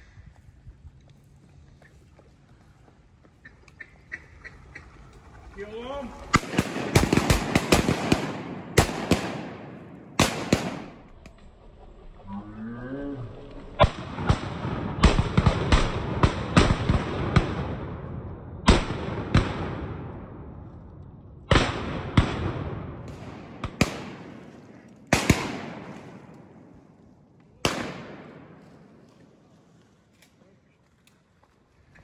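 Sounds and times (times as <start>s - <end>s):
shotguns firing with echo: 6.2s - 11.3s, 13.8s - 20.6s, 21.5s - 27.0s, 27.6s - 29.1s.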